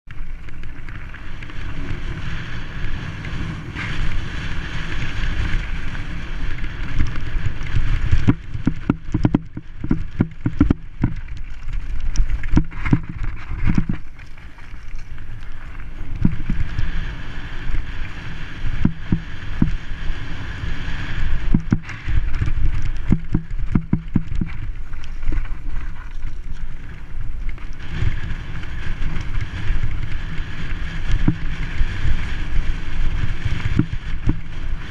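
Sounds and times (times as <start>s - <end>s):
wind rushing over microphone: 0.7s - 14.2s, 15.1s - 34.9s
bike rattling and knocking: 3.0s - 14.2s, 16.0s - 16.8s, 18.7s - 19.9s, 20.9s - 34.9s.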